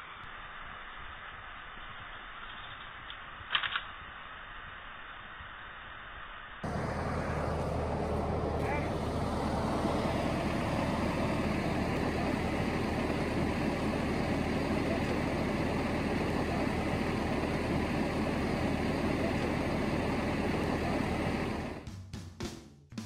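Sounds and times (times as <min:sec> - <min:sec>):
tractor engine idling: 0:06.6 - 0:21.9.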